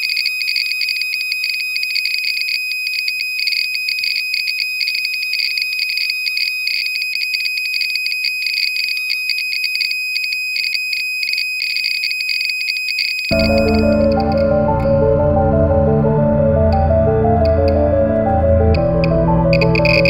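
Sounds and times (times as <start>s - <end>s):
high-pitched alarm beep: 13.3s - 15.2s, 19.5s - 20.0s
geiger counter crackling: 13.3s - 20.0s.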